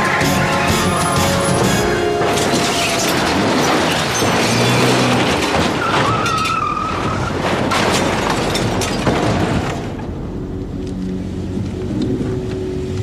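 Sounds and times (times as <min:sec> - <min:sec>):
tyres squealing on pavement: 0:00.7 - 0:09.0
car crunching impacts: 0:02.2 - 0:10.3.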